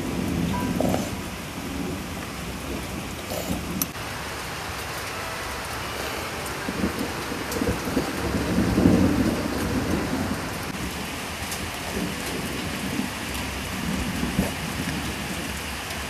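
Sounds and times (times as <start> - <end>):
steady rain falling: 0.0 - 16.0.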